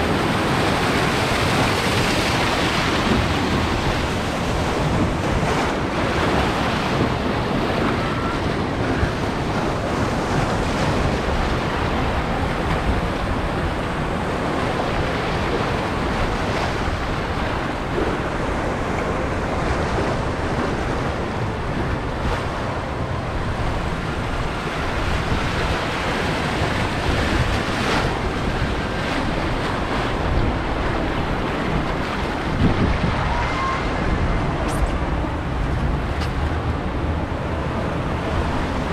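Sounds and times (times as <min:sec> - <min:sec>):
rushing churning water: 0:00.0 - 0:38.9
wind buffeting microphone: 0:00.0 - 0:38.9.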